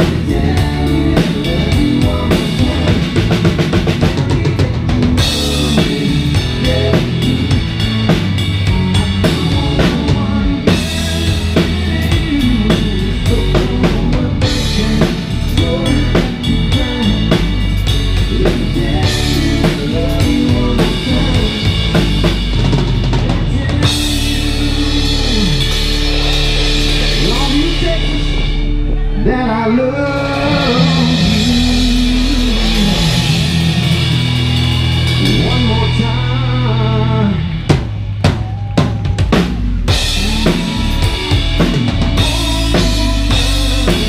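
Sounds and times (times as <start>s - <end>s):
drum kit beat: 0.0s - 29.2s, 30.1s - 44.0s
live band playing: 0.0s - 44.0s.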